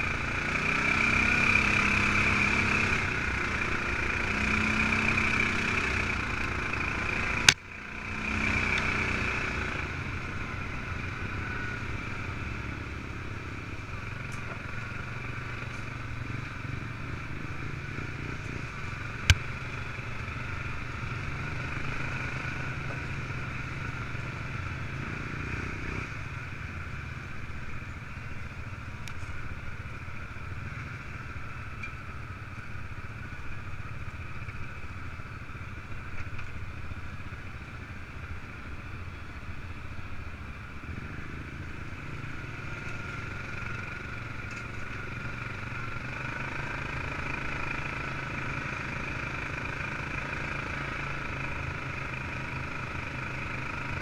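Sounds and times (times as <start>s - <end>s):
atv engine revving: 0.0s - 26.4s, 40.9s - 54.0s.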